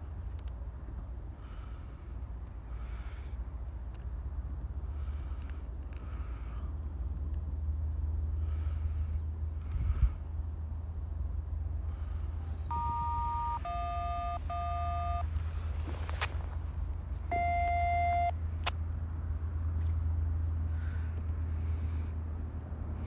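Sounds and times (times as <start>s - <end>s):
touch-tone beeps: 12.7s - 15.3s, 17.3s - 18.3s.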